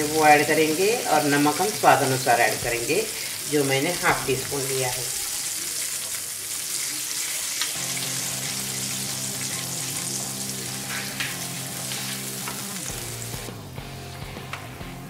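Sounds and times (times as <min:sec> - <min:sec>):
oil sizzling in a pan: 0:00.0 - 0:15.0.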